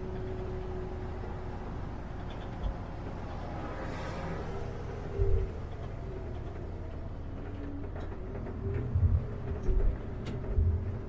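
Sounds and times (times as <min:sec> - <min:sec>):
bus engine rumble: 0:00.0 - 0:11.0.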